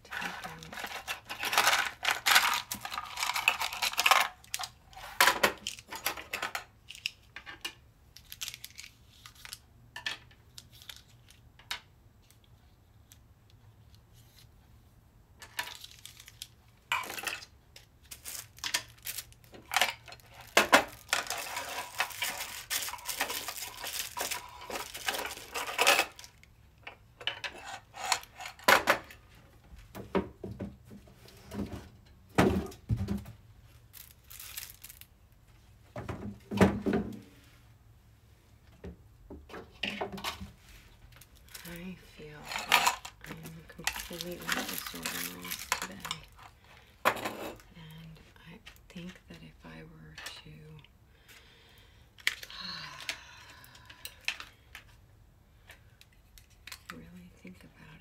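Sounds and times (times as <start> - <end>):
plastic bags rustling: 0.0 - 7.2, 15.5 - 26.5, 33.6 - 35.6, 40.4 - 48.0
plastic pens clicking and clattering: 0.0 - 13.2, 15.4 - 29.2, 33.9 - 35.1, 41.1 - 47.7, 52.2 - 55.0, 55.7 - 57.0.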